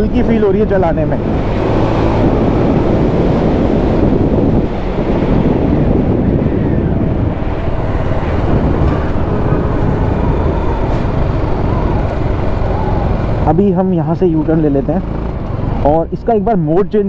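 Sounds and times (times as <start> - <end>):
wind noise on microphone: 0.0 - 13.5
motorcycle engine running: 0.0 - 16.6.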